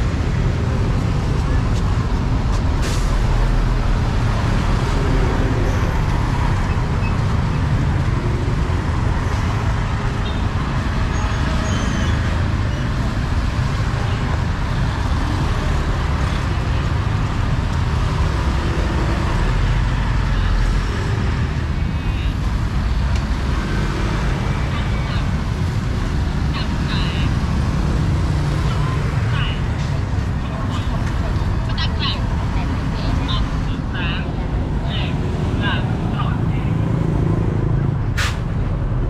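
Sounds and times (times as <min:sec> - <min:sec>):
traffic rumble: 0:00.0 - 0:39.0
faint voices: 0:28.3 - 0:37.0.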